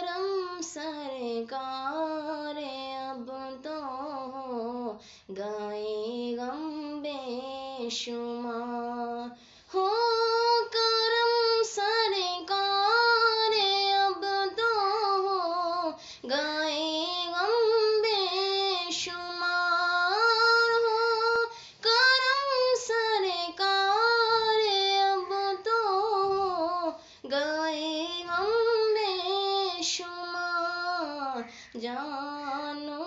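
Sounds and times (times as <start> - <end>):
woman singing devotional song: 0.0 - 33.0.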